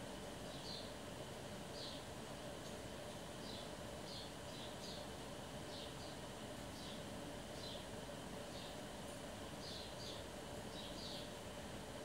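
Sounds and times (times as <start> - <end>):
small bird chirping: 9.6 - 11.3.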